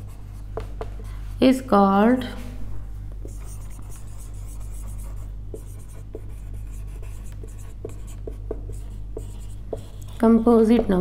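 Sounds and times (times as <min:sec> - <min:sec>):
marker squeaking on whiteboard: 0:03.3 - 0:10.6.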